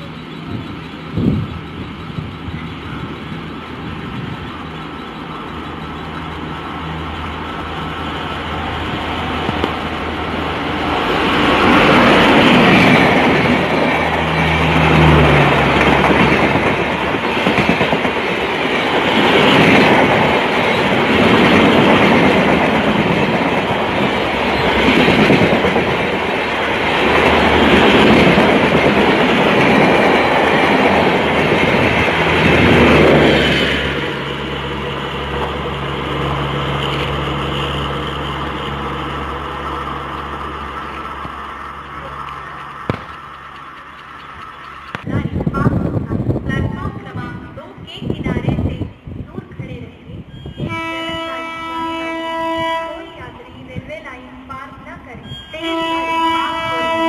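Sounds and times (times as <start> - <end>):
train passing at speed: 0.0 - 57.0
wheels clattering over rail joints: 36.7 - 45.4.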